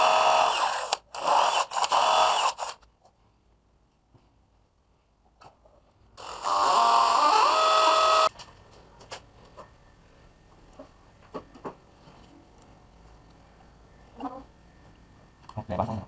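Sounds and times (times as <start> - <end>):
electric drill whining: 0.0 - 2.8, 6.2 - 8.3.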